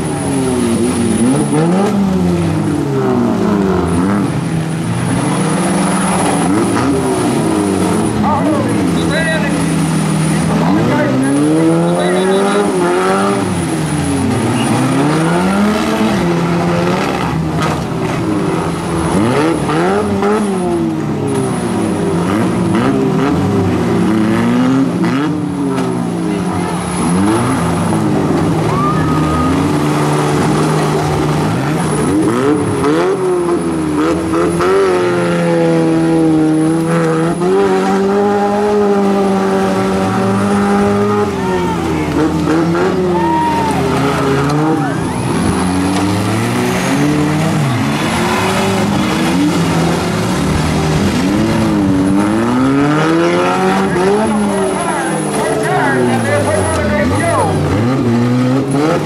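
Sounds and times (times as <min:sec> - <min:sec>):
car engines revving: 0:00.0 - 0:59.0
tyres spinning in mud: 0:26.0 - 0:59.0.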